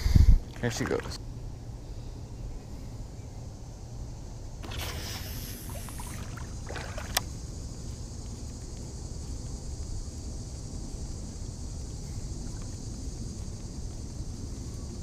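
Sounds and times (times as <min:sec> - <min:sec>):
wind noise on microphone: 0:00.0 - 0:00.6
insect chorus: 0:00.0 - 0:15.0.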